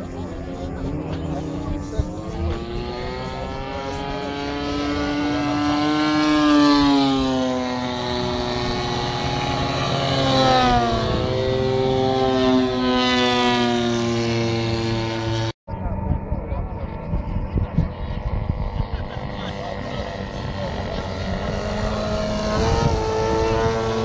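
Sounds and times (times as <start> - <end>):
model airplane engines droning: 0.0 - 24.0.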